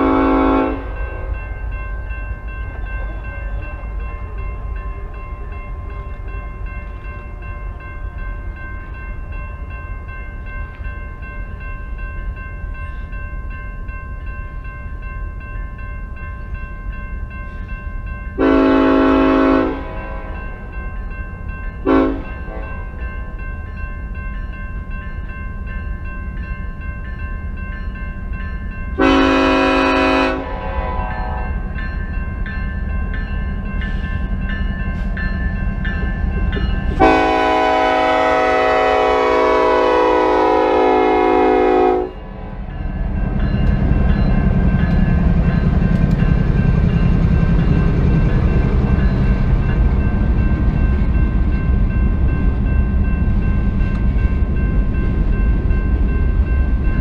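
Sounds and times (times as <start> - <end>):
locomotive horn blasts: 0.0 - 1.4, 18.4 - 20.4, 21.8 - 22.8, 29.0 - 31.6, 37.0 - 42.3
low rumble of train: 0.0 - 57.0
railroad crossing bell ringing: 0.0 - 57.0.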